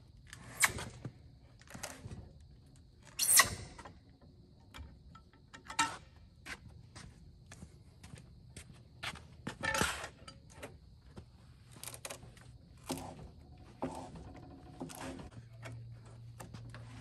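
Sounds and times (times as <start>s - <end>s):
metal clinks and knocks: 4.6s - 6.1s.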